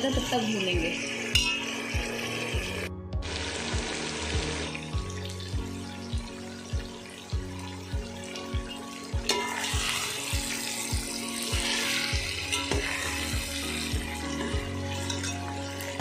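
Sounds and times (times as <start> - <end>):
meat sizzling in oil: 0.0 - 16.0
spoon stirring in metal pot: 9.2 - 10.4, 11.5 - 16.0.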